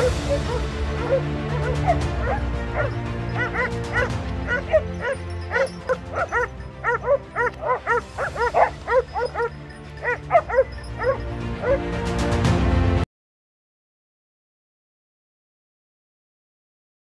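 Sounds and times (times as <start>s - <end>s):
dogs barking and yelping: 0.0s - 12.0s
background music: 0.0s - 13.0s.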